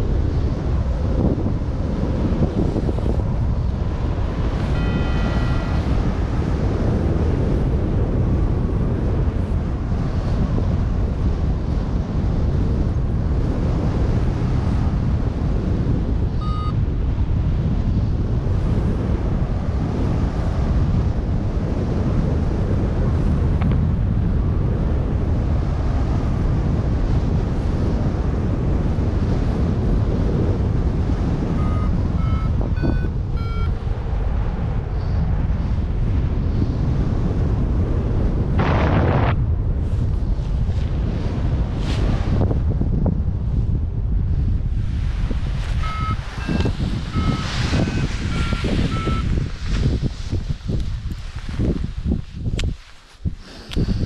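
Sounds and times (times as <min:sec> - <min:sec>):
wind rushing over microphone: 0:00.0 - 0:54.0
variometer short beeps: 0:04.7 - 0:06.0, 0:16.4 - 0:16.8, 0:31.5 - 0:33.8, 0:45.8 - 0:49.3.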